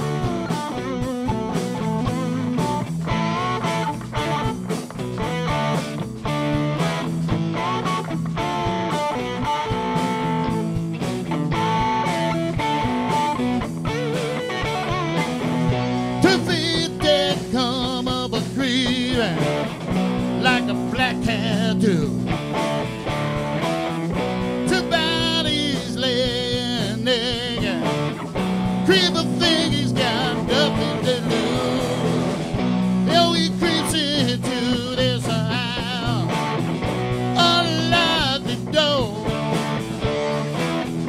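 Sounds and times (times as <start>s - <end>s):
bass guitar: 0.0s - 41.0s
drums: 0.0s - 41.0s
electric guitars: 0.0s - 41.0s
man singing: 16.2s - 19.7s, 20.4s - 22.3s, 24.6s - 28.0s, 28.8s - 36.4s, 37.3s - 39.5s.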